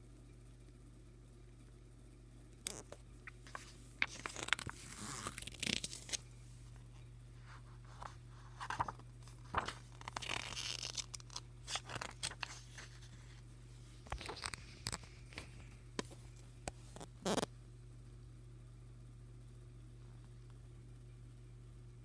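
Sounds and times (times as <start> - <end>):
low steady hum: 0.0 - 22.0
paper pages turning: 2.7 - 6.2, 7.5 - 13.4, 14.0 - 17.4.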